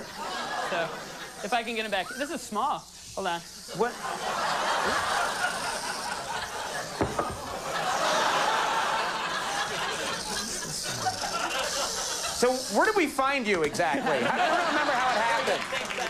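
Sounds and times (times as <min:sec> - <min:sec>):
audience laughing: 0:00.0 - 0:01.6, 0:03.7 - 0:12.6, 0:13.7 - 0:16.0.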